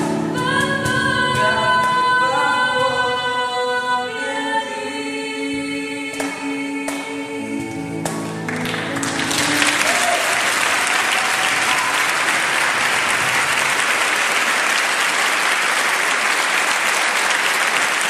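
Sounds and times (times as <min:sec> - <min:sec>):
crowd applauding: 0:08.2 - 0:18.0.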